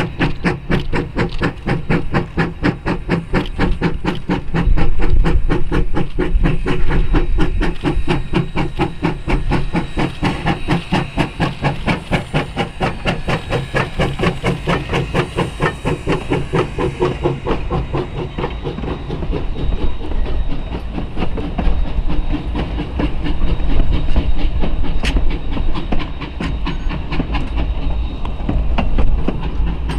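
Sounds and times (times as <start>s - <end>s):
steam hissing: 0.0s - 29.9s
steam locomotive chuffing: 0.0s - 29.9s.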